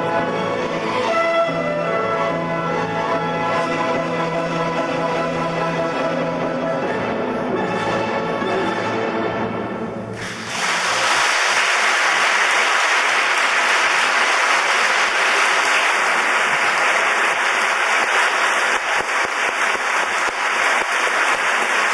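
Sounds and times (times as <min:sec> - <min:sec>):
audience applause: 0:10.2 - 0:21.9.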